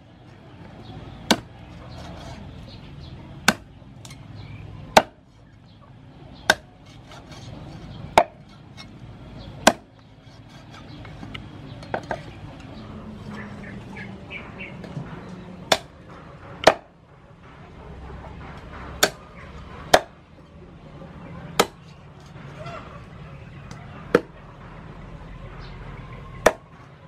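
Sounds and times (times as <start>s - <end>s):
cleaver chopping on wooden block: 1.2s - 1.5s, 3.4s - 4.2s, 4.9s - 5.2s, 6.4s - 7.3s, 8.1s - 8.5s, 9.6s - 9.9s, 15.7s - 15.9s, 16.6s - 16.9s, 18.9s - 19.2s, 19.8s - 20.2s, 21.6s - 21.8s, 24.1s - 24.3s, 26.4s - 26.6s.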